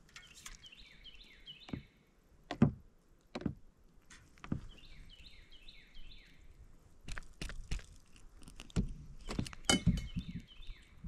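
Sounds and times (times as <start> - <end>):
bird singing falling notes: 0.0 - 2.1, 9.2 - 11.0.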